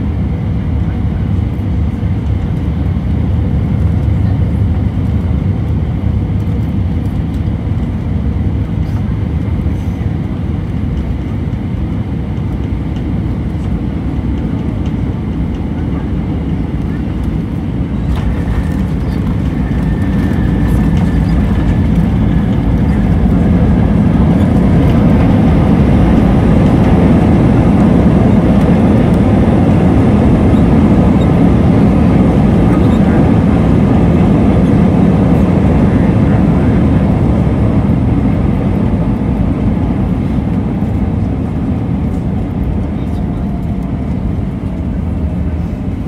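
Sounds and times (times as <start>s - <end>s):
jet engine rumble: 0.0s - 46.0s
wheels rolling on runway: 16.4s - 37.5s.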